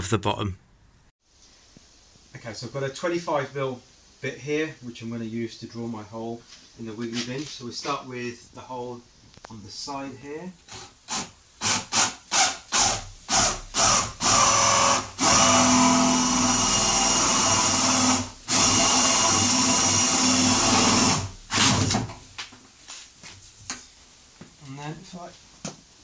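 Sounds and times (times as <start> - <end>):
cordless drill boring plastic: 10.7 - 21.9.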